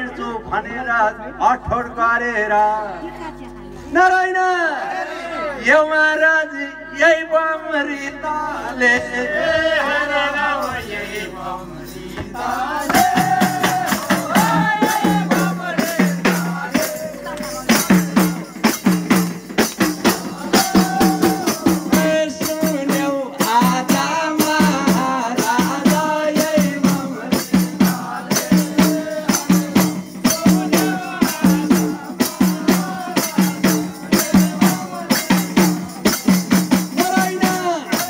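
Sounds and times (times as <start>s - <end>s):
voices singing devotional song: 4.0s - 38.0s
frame drums with jingles beating: 10.4s - 38.0s.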